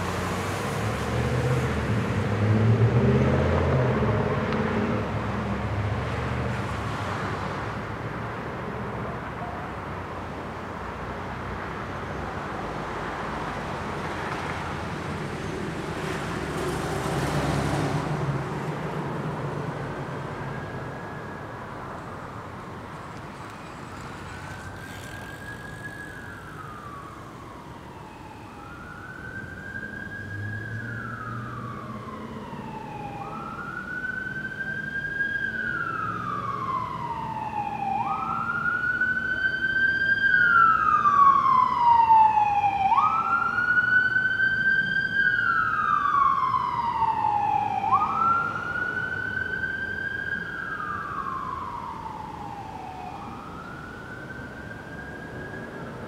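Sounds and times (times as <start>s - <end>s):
emergency vehicle siren wailing: 12.6s - 56.0s.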